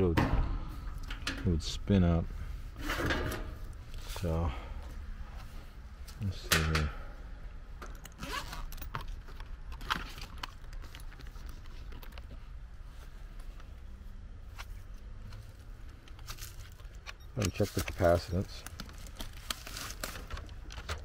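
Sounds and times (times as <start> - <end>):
low steady rumble: 0.0 - 17.2
tools handled clicks and rustles: 6.0 - 7.0, 7.8 - 12.6, 14.5 - 21.0.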